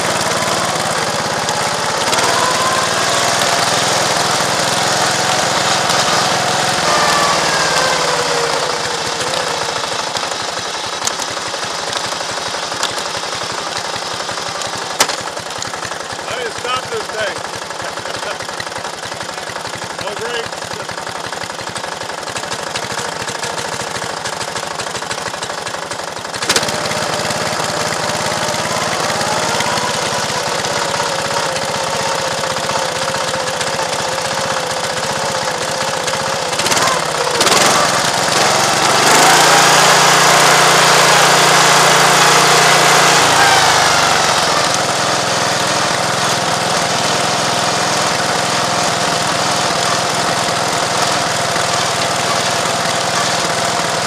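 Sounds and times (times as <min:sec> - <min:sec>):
rapid clatter on track: 0:00.0 - 0:54.0
small engine running: 0:00.0 - 0:54.0.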